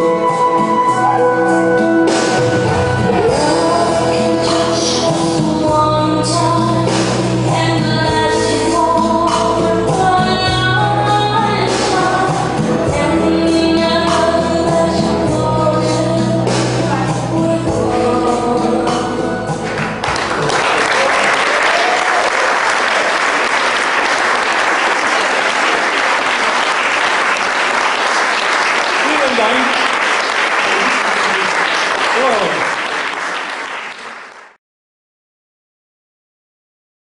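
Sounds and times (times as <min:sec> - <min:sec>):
dance music: 0:00.0 - 0:20.8
audience applause: 0:19.6 - 0:34.6.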